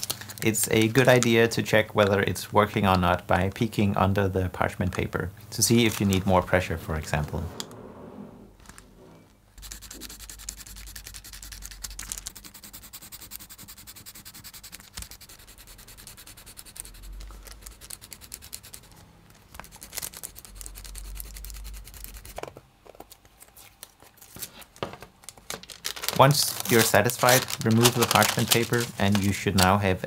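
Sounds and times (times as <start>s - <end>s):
pencil scratching on paper: 9.6s - 18.9s.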